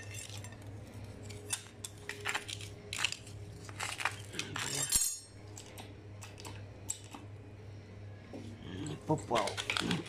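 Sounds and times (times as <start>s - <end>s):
steel parts clinking: 0.0s - 7.2s.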